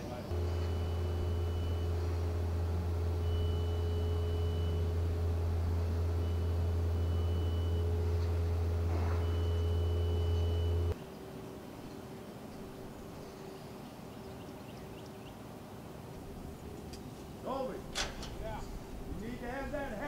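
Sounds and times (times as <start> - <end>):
machine humming: 0.0 - 14.2
mid-pitched steady tone: 0.3 - 11.0.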